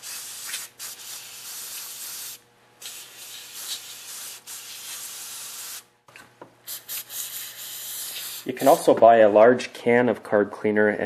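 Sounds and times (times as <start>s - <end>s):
aerosol can spraying: 0.0s - 5.9s, 6.7s - 8.8s.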